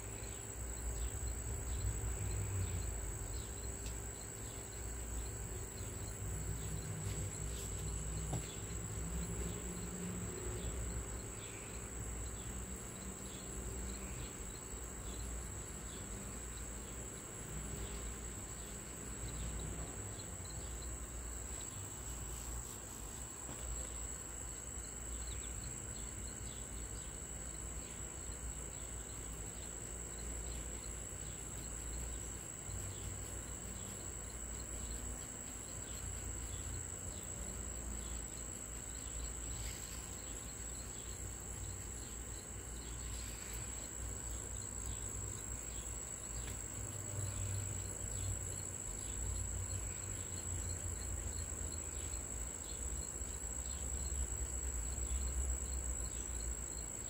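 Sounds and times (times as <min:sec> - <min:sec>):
cricket trilling: 0:00.0 - 0:57.0.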